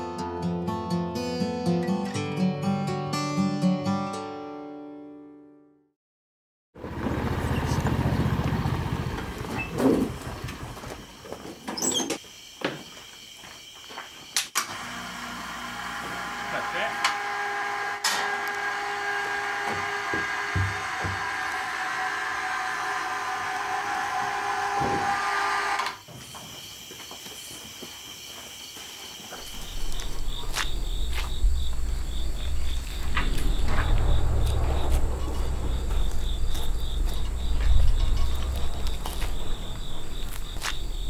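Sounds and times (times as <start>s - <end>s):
insects chirping: 8.8s - 14.6s, 25.9s - 41.0s
low rumble: 29.5s - 41.0s.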